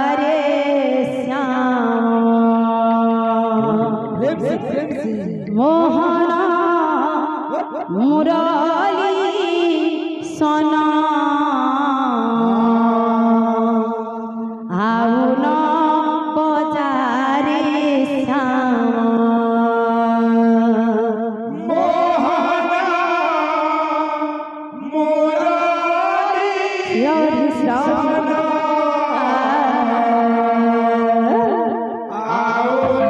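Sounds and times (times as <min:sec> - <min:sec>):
man singing into a microphone: 0:00.0 - 0:08.4, 0:11.0 - 0:14.1, 0:21.5 - 0:33.0.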